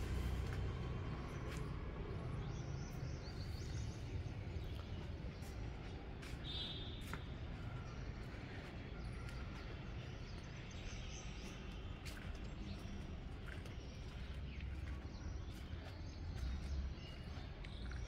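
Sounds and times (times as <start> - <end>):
steady low rumble: 0.0 - 6.4.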